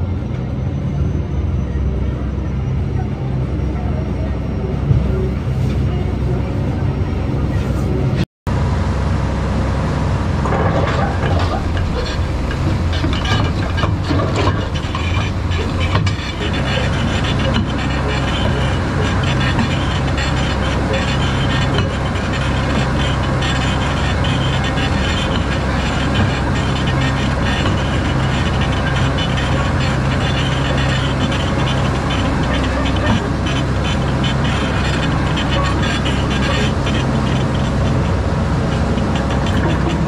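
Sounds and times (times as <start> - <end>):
boat diesel engine running: 0.0 - 40.0
knocks and rattles: 10.4 - 40.0.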